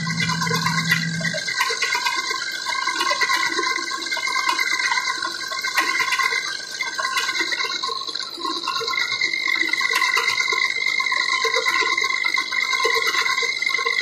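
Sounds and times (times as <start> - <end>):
high machine tones: 0.0 - 1.6.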